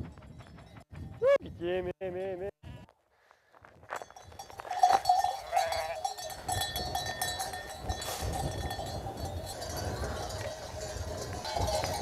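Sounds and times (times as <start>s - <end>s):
livestock bells clanking: 0.0s - 1.2s, 3.9s - 12.0s.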